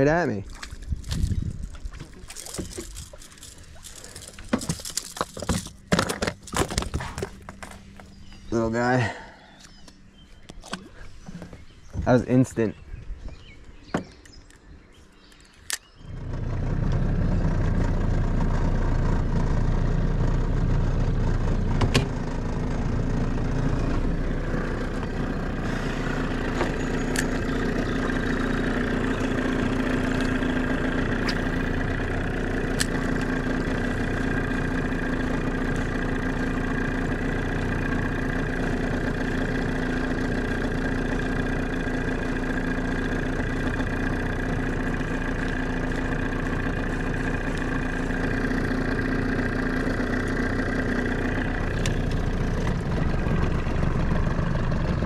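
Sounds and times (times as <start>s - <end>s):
outboard motor starting and running: 0.0s - 55.0s
sharp click: 15.3s - 16.0s.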